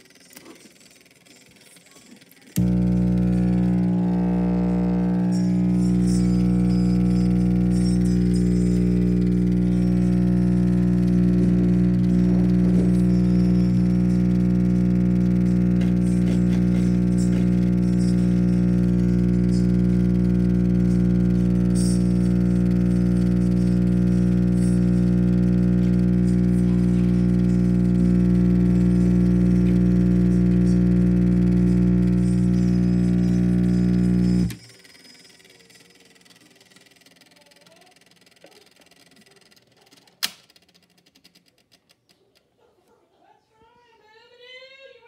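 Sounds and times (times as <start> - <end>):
amplifier mains hum: 2.5 - 34.6
faint evenly spaced ticks: 34.5 - 42.4.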